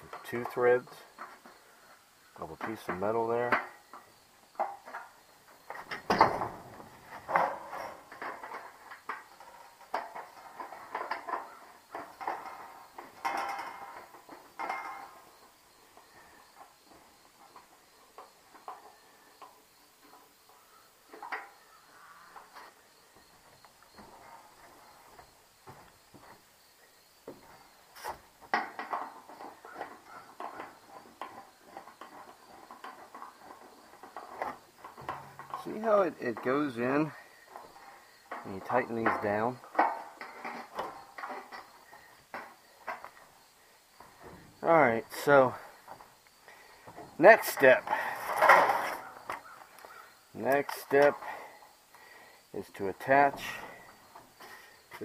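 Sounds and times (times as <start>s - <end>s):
metal clanks: 2.4s - 15.4s, 27.3s - 43.3s, 43.9s - 49.6s, 52.6s - 55.0s
metallic clinks and knocks: 2.6s - 20.2s.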